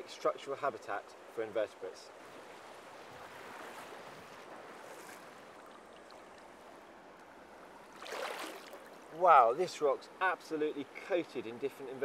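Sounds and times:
river rushing over stones: 0:07.9 - 0:09.3.

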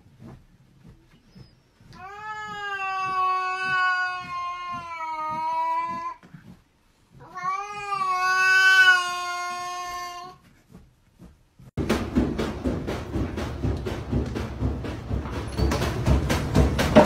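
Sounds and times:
cat yowling: 0:02.0 - 0:06.2, 0:07.2 - 0:10.4.

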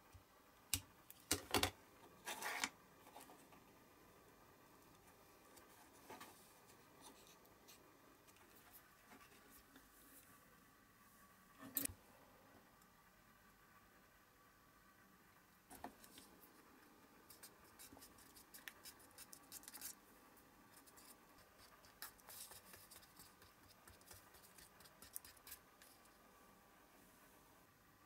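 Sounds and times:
stick stirring thick liquid in cup: 0:20.7 - 0:26.2.

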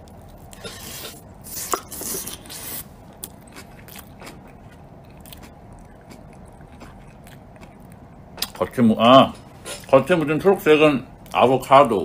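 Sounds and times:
person chewing: 0:00.0 - 0:08.7, 0:09.3 - 0:10.1.

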